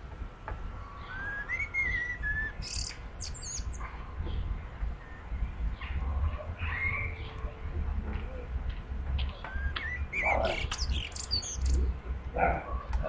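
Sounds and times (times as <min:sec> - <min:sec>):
birds singing: 0:00.6 - 0:13.0
high bird chirps: 0:01.0 - 0:04.4, 0:09.2 - 0:11.9.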